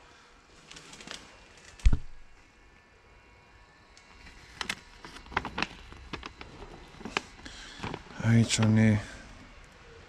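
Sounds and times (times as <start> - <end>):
paper crackling and rustling: 4.2 - 9.1.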